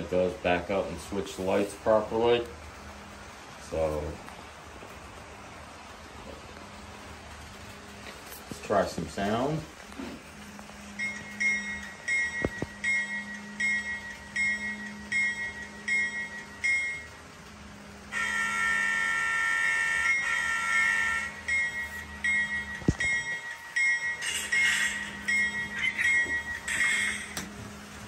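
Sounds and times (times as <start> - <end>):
locomotive bell ringing: 10.9 - 17.3, 18.1 - 27.6
locomotive horn blast: 18.1 - 21.5.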